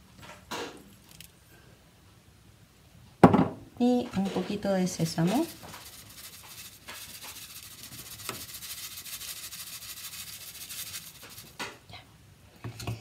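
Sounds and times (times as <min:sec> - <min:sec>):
seeds rustling over glass: 0:00.8 - 0:01.4, 0:04.2 - 0:11.7.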